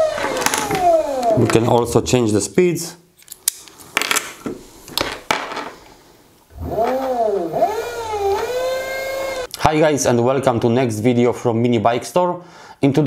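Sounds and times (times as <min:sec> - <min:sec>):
electric motor whine: 0:06.5 - 0:09.5.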